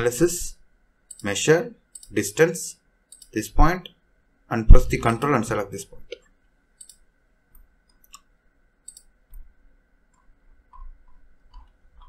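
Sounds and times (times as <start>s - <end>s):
faint computer mouse clicks: 3.1s - 3.4s, 6.1s - 9.5s.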